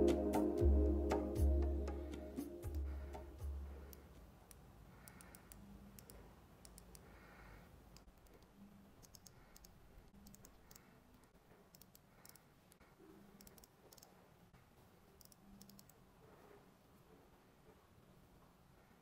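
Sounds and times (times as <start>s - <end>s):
fingertips tapping smartwatch: 7.9s - 14.2s.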